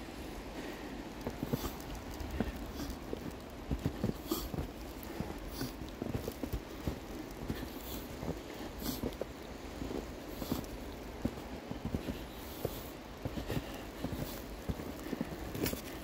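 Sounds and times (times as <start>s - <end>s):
low outdoor rumble: 0.0s - 16.0s
footsteps crunching in snow: 0.6s - 16.0s.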